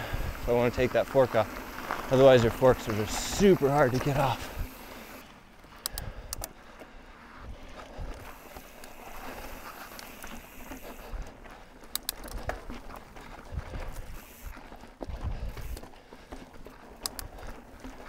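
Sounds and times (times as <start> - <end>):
bike clicks and rattles: 0.0 - 18.0
bike tyres on dirt trail: 0.0 - 18.0.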